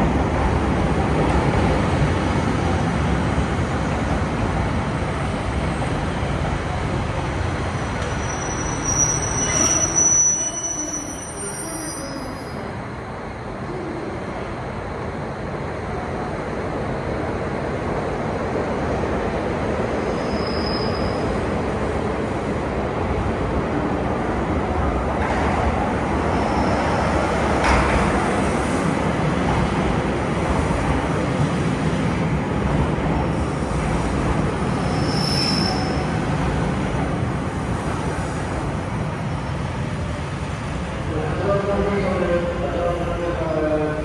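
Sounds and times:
high brake squeals: 8.0s - 12.7s, 20.0s - 21.4s, 26.4s - 26.9s, 34.8s - 36.2s.

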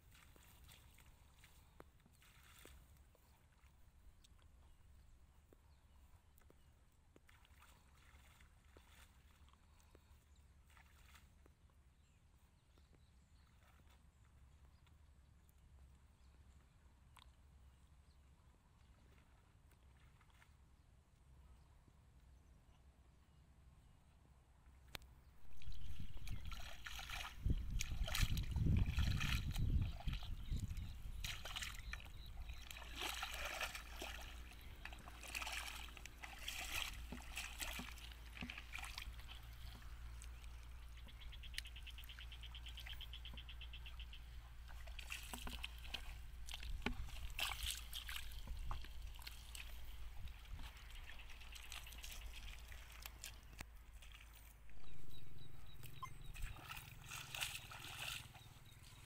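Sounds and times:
feet splashing through puddles: 25.5s - 40.4s, 44.6s - 54.5s, 55.8s - 59.0s.

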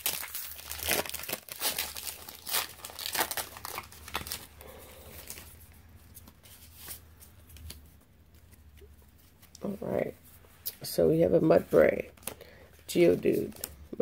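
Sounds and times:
foil wrapper crinkling: 0.0s - 5.6s.

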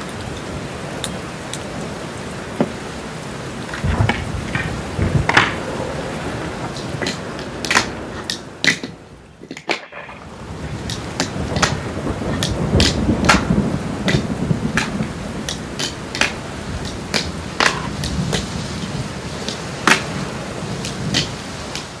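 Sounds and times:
fingerboard wheels rolling on wood: 3.6s - 20.1s
fingerboard deck clicks and clacks: 3.7s - 5.6s, 6.7s - 18.5s, 19.4s - 20.1s, 20.8s - 21.9s.

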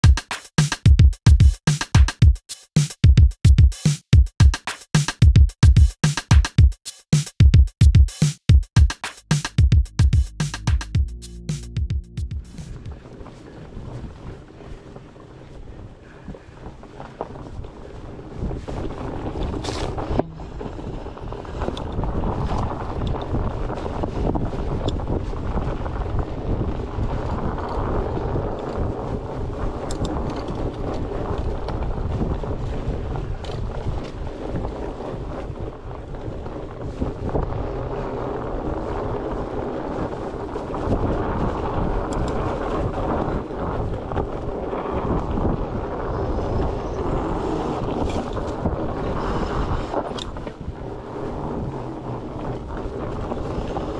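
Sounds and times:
bike tyres rolling on dirt: 12.7s - 53.9s
wind buffeting microphone: 12.7s - 53.9s
bike clicks and rattles: 29.8s - 31.8s.

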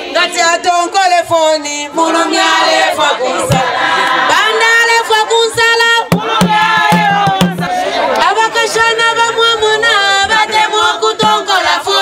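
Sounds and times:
group singing in chorus: 1.9s - 5.1s, 6.1s - 12.0s
wooden hand drum strikes: 6.0s - 7.7s.

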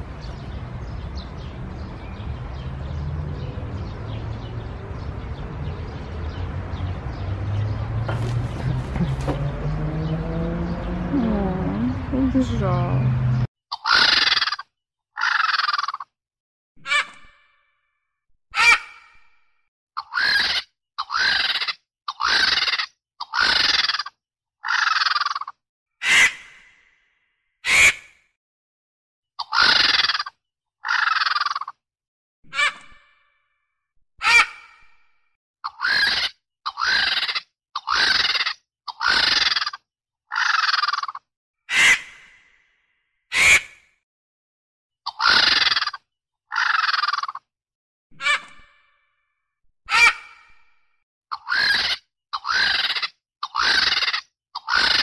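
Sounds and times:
small birds chirping: 0.0s - 14.6s.

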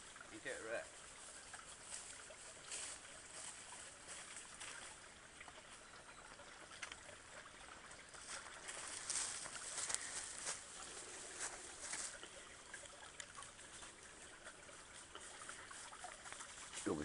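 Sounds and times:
soft steady hiss: 0.0s - 17.0s
rustles in dry leaves: 1.0s - 4.9s, 8.2s - 12.3s.

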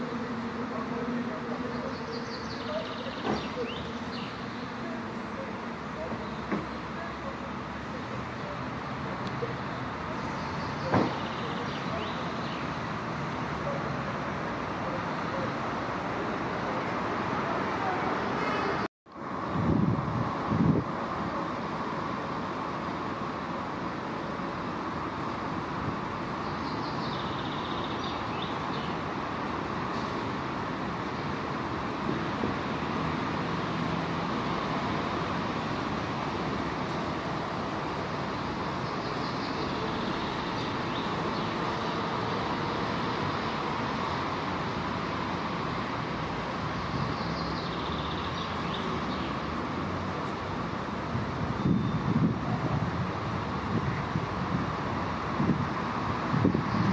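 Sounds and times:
distant traffic hum: 0.0s - 56.9s
faint high bird chirps: 51.6s - 52.1s.

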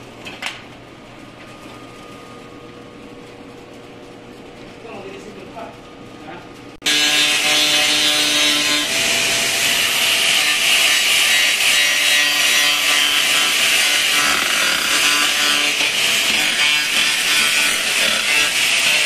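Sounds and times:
power grinder on sheet metal: 6.9s - 19.0s.

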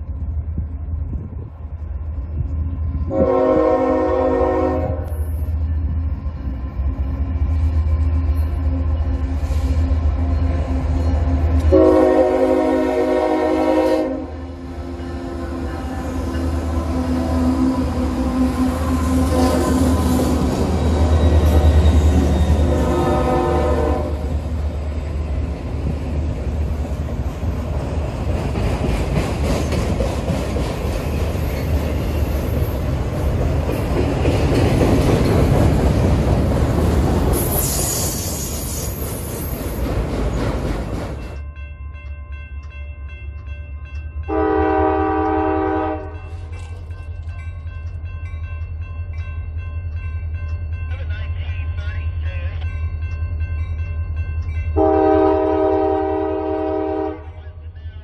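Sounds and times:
freight train rolling past: 0.0s - 58.0s
crossing bell ringing: 2.3s - 24.4s, 41.1s - 57.1s
locomotive horn: 3.1s - 5.4s, 11.6s - 24.4s, 44.3s - 46.4s, 54.8s - 57.6s
high wheel squeal: 20.6s - 22.9s, 37.4s - 39.8s.

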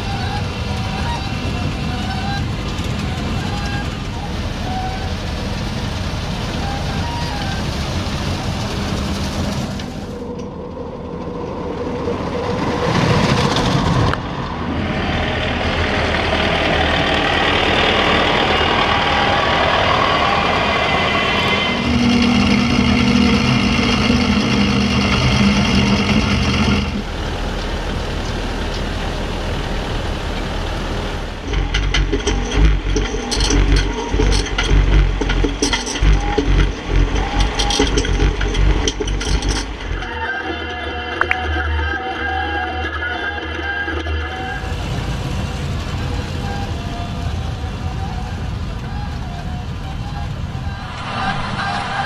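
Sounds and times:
tractor engine: 0.0s - 52.0s
rotating cutter noise: 15.3s - 27.7s, 31.1s - 45.0s.

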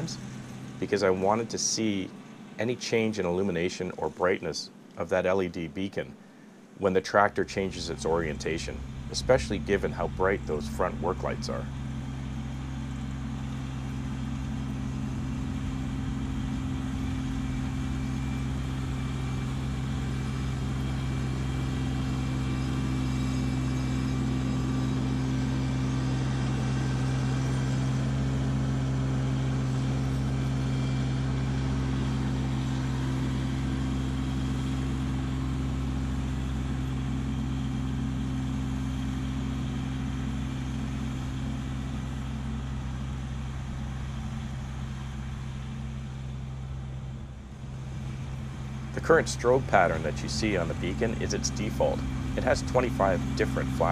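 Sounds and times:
tractor diesel engine running: 0.0s - 4.4s, 6.2s - 53.9s.

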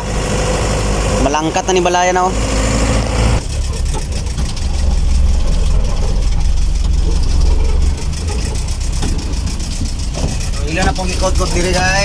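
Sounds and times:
truck engine rumbling: 0.0s - 12.0s
light rattling: 3.4s - 12.0s.

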